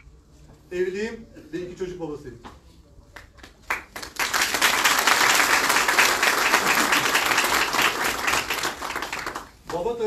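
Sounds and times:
audience applauding: 0:03.4 - 0:09.9.

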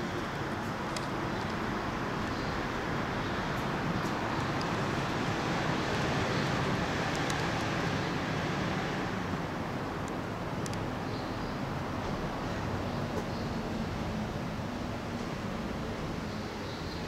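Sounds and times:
outdoor background hiss: 0:00.0 - 0:17.0.

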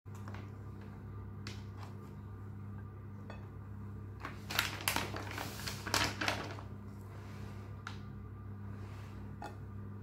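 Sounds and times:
steady low hum: 0:00.1 - 0:10.0
plastic packaging crinkling: 0:04.2 - 0:06.7.

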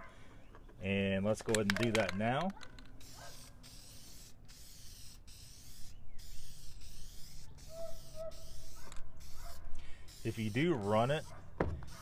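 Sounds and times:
aerosol can spraying: 0:03.0 - 0:12.0.

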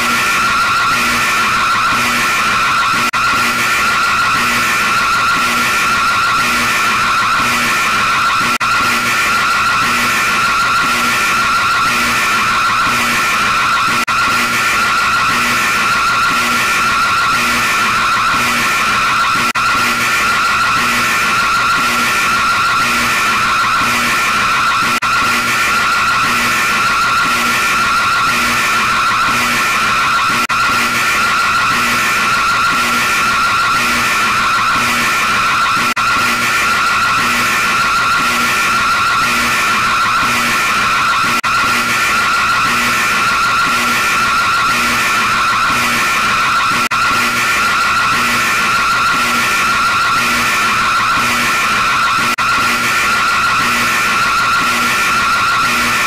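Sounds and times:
pulsing screeching alarm tone: 0:00.0 - 0:56.0.

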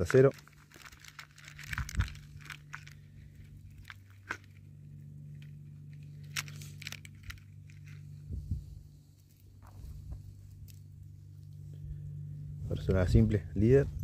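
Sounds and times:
fishing tackle clicking and crinkling: 0:00.0 - 0:08.3, 0:09.2 - 0:11.6
steady low hum: 0:00.0 - 0:14.0.

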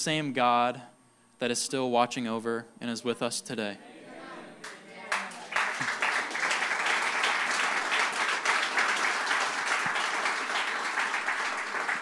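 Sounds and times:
crowd applauding: 0:04.6 - 0:12.0.

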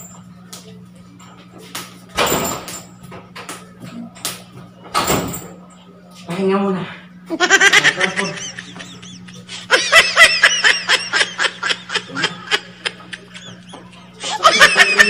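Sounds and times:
steady low hum: 0:00.0 - 0:15.0
high-pitched laughing and giggling: 0:07.3 - 0:15.0.

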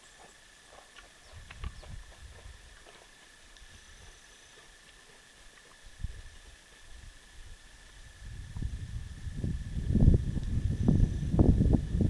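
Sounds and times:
wind buffeting microphone: 0:01.2 - 0:02.9, 0:05.8 - 0:12.0.

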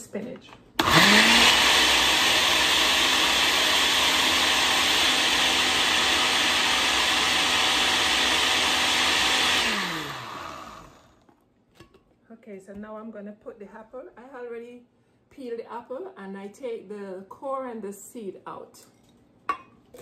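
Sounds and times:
blender running: 0:00.8 - 0:11.2.

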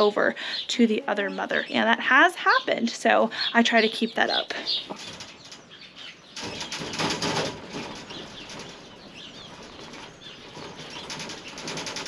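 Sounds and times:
faint birdsong: 0:00.0 - 0:12.0
rabbits scrabbling in wire cage: 0:03.7 - 0:12.0.

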